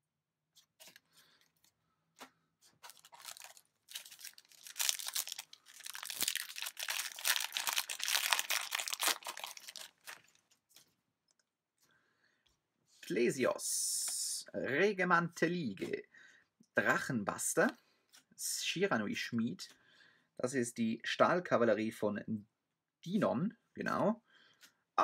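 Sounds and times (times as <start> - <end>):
foil wrapper tearing and crinkling: 2.8 - 10.4.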